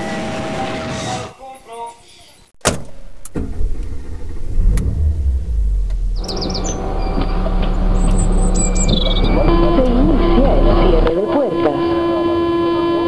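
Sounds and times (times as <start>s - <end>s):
car engine starting and running: 2.6s - 13.0s
click: 4.7s - 4.9s
birds chirping: 4.8s - 12.2s.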